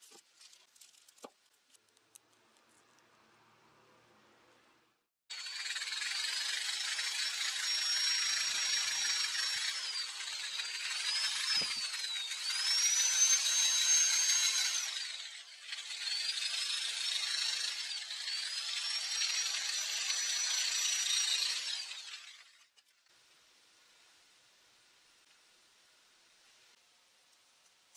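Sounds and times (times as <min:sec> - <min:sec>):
electric drill whining: 0:05.3 - 0:22.6.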